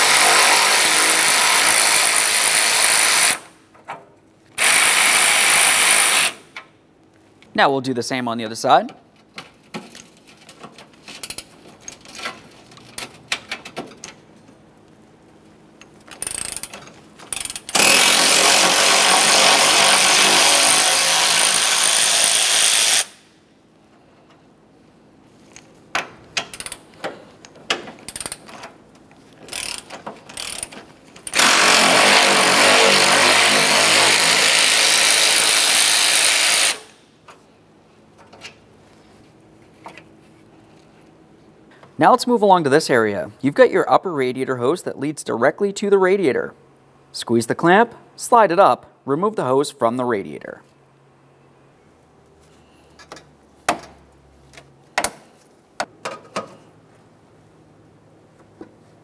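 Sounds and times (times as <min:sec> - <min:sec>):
power ratchet running: 0:04.6 - 0:06.4, 0:16.2 - 0:16.7, 0:17.3 - 0:23.2, 0:29.4 - 0:37.0.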